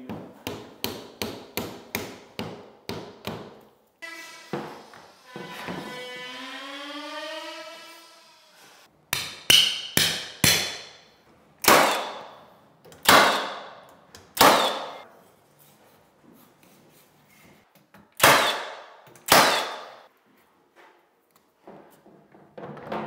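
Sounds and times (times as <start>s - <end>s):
nail gun firing: 11.6s - 12.3s, 13.0s - 13.7s, 14.4s - 15.0s, 18.2s - 20.0s.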